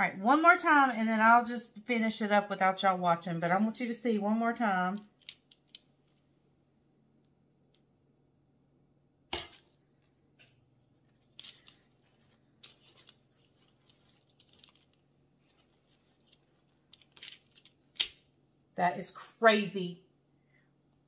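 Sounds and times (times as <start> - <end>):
paper towel crinkling: 10.8 - 18.0.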